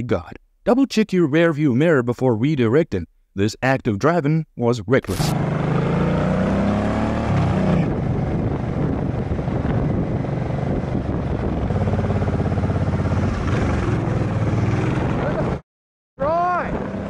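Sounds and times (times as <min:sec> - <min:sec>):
motorcycle engine running: 0:05.2 - 0:15.6.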